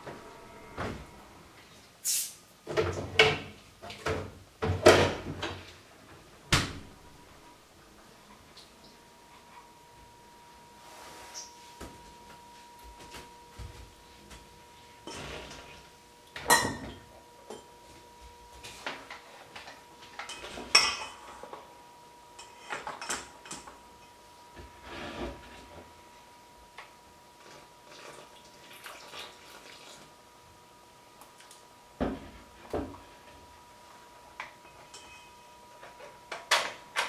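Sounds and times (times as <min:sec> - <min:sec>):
faint steady high tone: 0:08.6 - 0:21.1, 0:34.6 - 0:36.0
utensils clinking against steel bowl: 0:19.6 - 0:21.4, 0:34.6 - 0:35.5.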